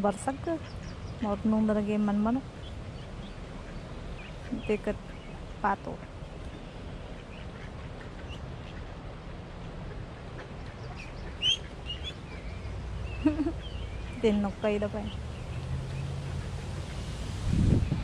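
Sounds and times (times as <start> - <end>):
low outdoor rumble: 0.0 - 18.0
ducks quacking: 7.0 - 12.5.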